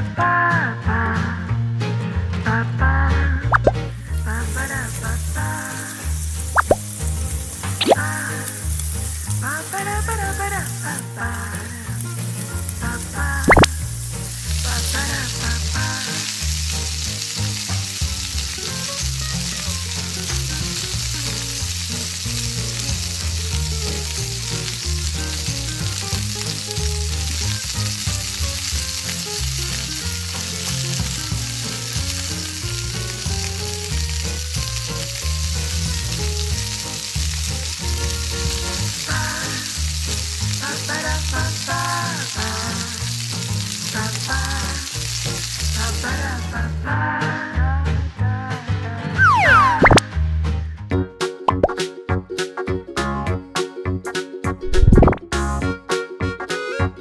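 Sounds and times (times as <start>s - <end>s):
background music: 0.0s - 57.0s
hot oil sizzling in a wok: 3.4s - 48.3s.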